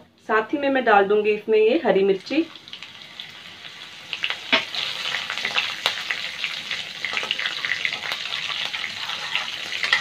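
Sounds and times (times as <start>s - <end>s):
spices sizzling in hot oil: 2.0s - 10.0s.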